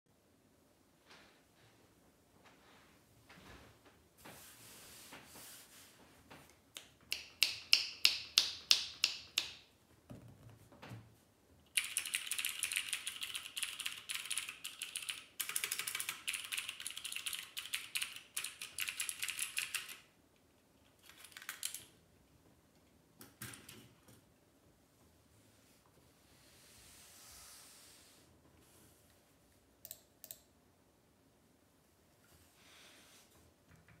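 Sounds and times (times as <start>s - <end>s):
clicky keyboard typing: 11.7s - 20.1s, 21.0s - 22.0s, 29.8s - 30.5s.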